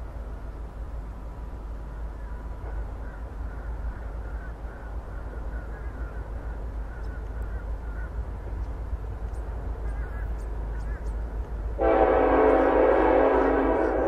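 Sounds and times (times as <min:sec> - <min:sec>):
birds calling: 0:01.9 - 0:11.7.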